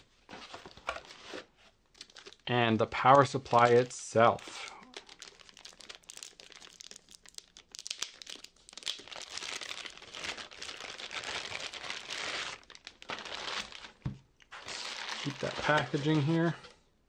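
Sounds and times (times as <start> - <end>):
plastic bag crinkling: 1.9 - 2.5, 4.4 - 16.5.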